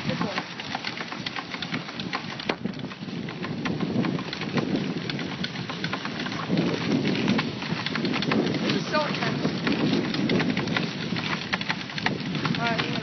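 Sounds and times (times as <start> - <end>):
sled runners scraping snow: 0.0 - 13.0.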